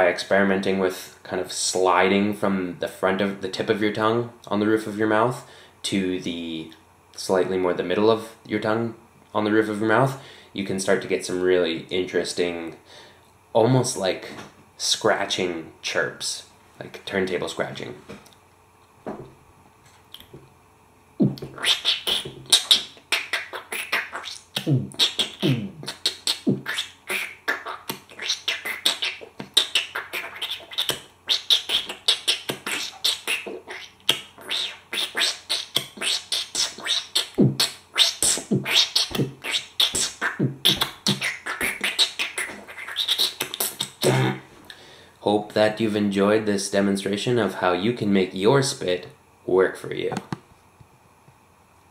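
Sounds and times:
beatbox deep beats: 21.2s - 44.5s
beatbox scratch chirps: 21.2s - 44.5s
beatboxing hi-hats: 21.2s - 44.5s.

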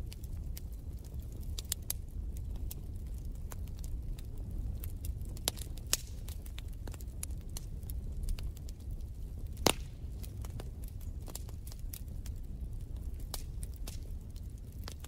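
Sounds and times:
wood fire crackling and popping: 0.0s - 15.0s.

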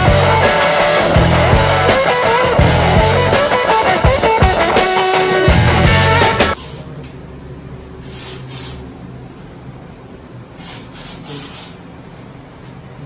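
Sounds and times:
background music: 0.0s - 6.6s.

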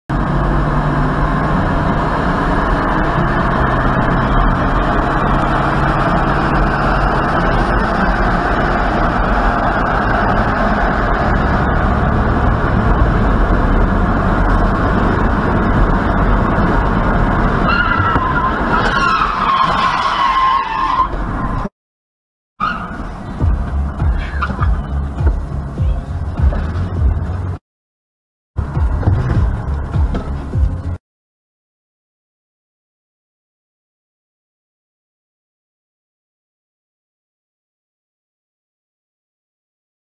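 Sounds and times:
car road and engine noise: 0.1s - 21.7s, 22.6s - 27.6s, 28.6s - 31.0s.

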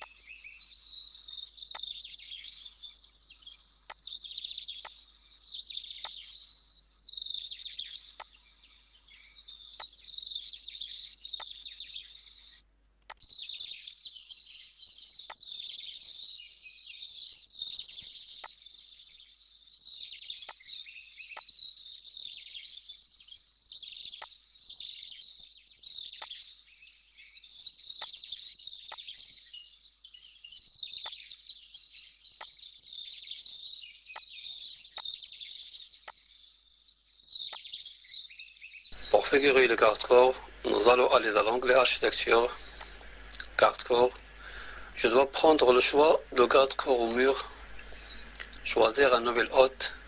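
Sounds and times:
birds chirping chorus: 0.0s - 50.0s
sharp clicks: 41.4s - 45.1s, 47.0s - 48.8s.

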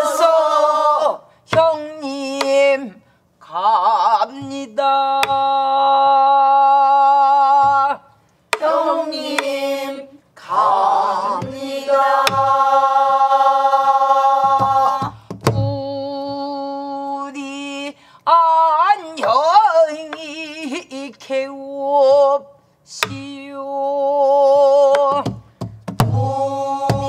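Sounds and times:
barrel drum strokes: 11.3s - 12.8s
person singing long held notes: 26.1s - 27.0s.

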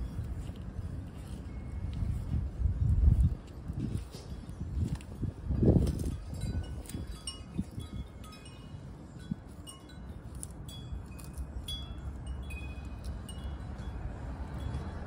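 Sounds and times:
steady low rumble: 0.0s - 15.0s
wind chimes tinkling: 3.8s - 15.0s.

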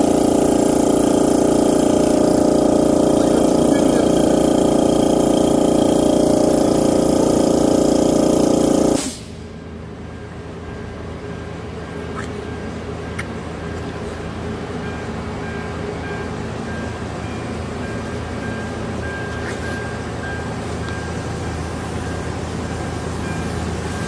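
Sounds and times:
electric machine running: 0.0s - 9.1s.

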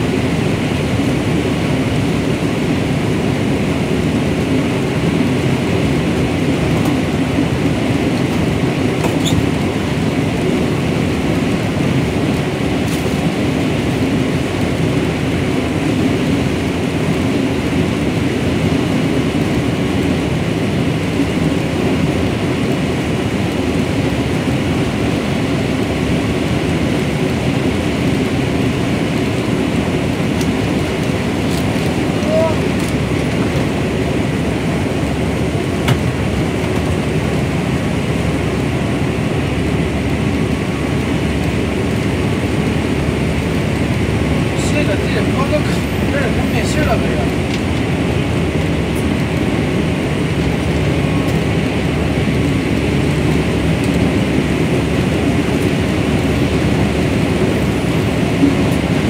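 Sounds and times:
combine harvester rumbling: 0.0s - 59.0s.

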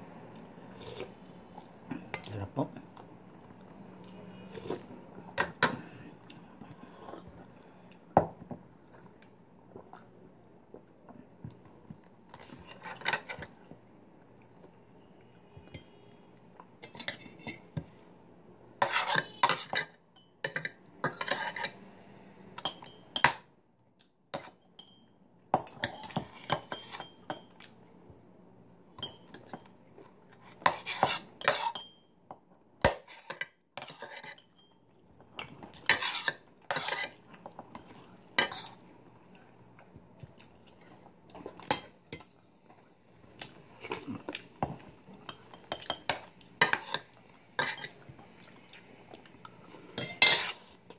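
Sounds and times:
cutlery clinking on ceramic bowls: 16.8s - 17.8s, 18.8s - 21.8s, 22.6s - 23.5s, 24.3s - 27.7s, 29.0s - 29.7s, 30.6s - 32.1s, 32.8s - 38.8s, 44.6s - 48.0s, 50.0s - 50.6s.

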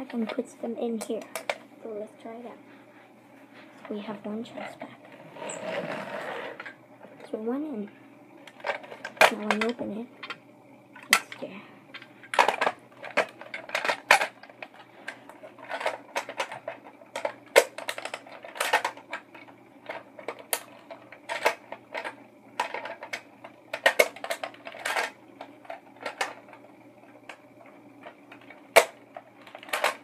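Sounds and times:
plastic toy clicking and clattering: 1.0s - 1.6s, 8.5s - 10.4s, 11.0s - 30.0s.

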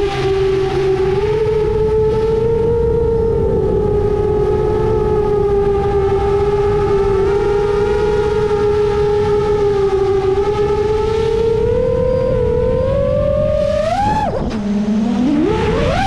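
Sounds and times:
drone motors whining: 0.0s - 16.0s
wind rushing on microphone: 0.0s - 16.0s.

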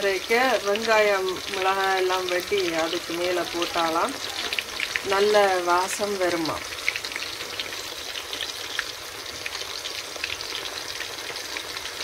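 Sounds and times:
fish frying in hot oil: 0.0s - 12.0s.

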